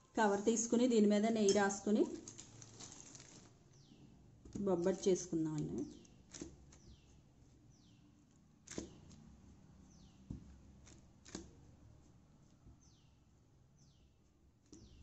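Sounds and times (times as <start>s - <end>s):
hand patting dough on plastic: 4.4s - 13.1s.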